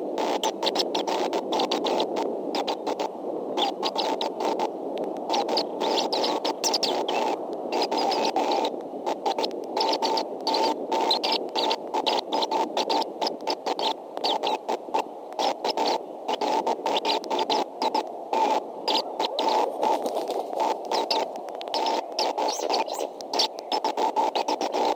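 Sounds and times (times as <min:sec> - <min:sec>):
microphone hiss: 0:00.0 - 0:24.9
short irregular crackles: 0:11.4 - 0:24.9.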